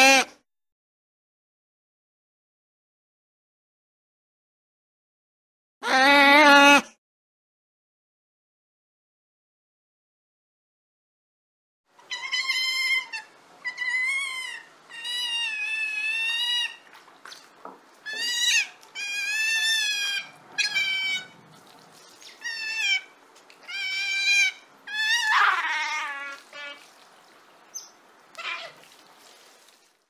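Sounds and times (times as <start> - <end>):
otter squealing calls: 12.0 - 16.8, 18.0 - 21.4, 22.2 - 26.9, 27.7 - 28.8.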